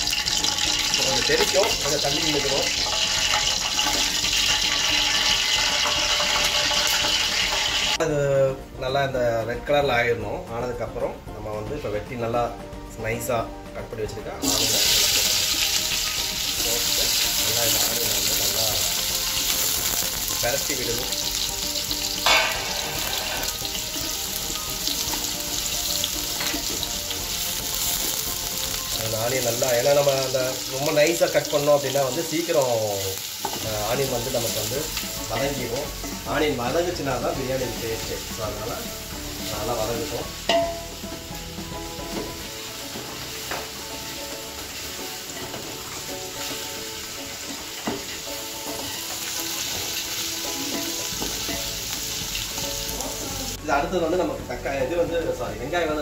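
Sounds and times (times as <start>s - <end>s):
stirring and scraping in a pan: 0.0s - 8.0s, 21.3s - 28.9s, 42.0s - 53.2s
onions sizzling in oil: 0.0s - 8.1s, 14.2s - 56.0s.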